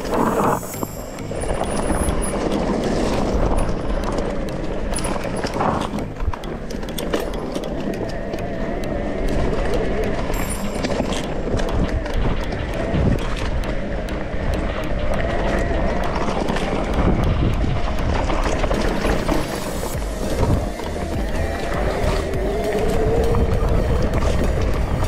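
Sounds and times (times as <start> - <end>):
bike clicks and rattles: 0.0 - 25.0
wind rumble on microphone: 7.9 - 25.0.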